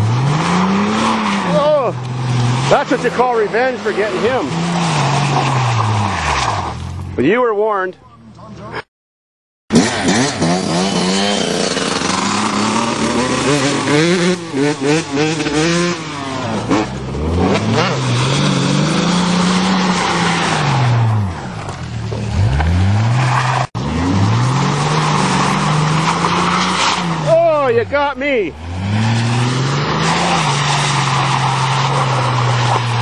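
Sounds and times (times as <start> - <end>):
car engine revving hard: 0.0 - 6.8, 9.7 - 21.6, 22.2 - 27.4, 28.5 - 33.0
wheels spinning in mud: 29.1 - 33.0.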